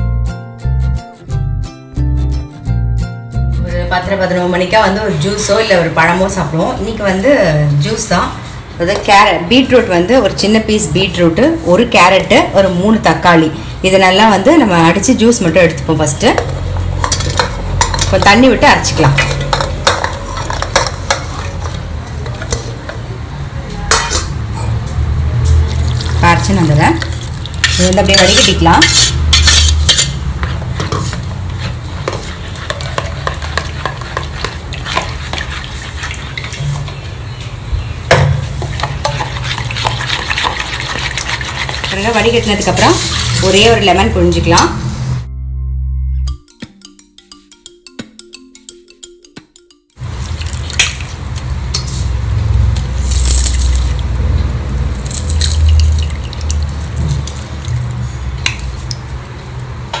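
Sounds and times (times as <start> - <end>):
light music: 0.0 - 6.8, 43.4 - 50.7
spoon scraping wet pulp: 27.2 - 37.1, 38.5 - 43.8
juice dripping into liquid: 54.7 - 59.1.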